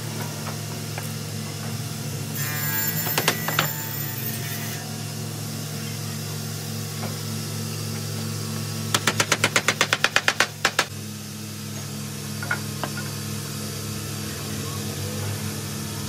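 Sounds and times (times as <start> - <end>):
hammer tapping small nails: 9.0 - 10.9.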